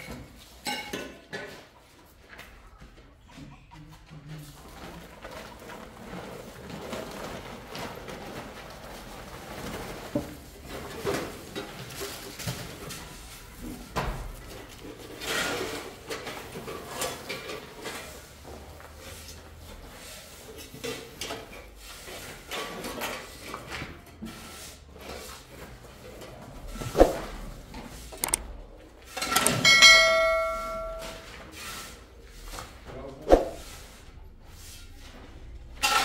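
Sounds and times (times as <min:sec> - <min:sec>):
tools knocking and scraping: 0:27.9 - 0:31.6.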